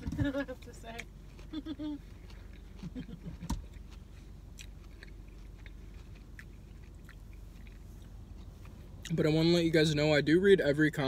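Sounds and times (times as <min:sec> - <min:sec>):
person chewing food: 0:01.0 - 0:09.4.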